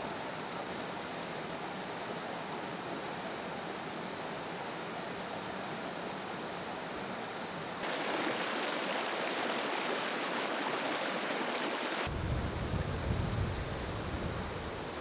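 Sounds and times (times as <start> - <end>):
stream rushing over rocks: 7.8 - 12.1.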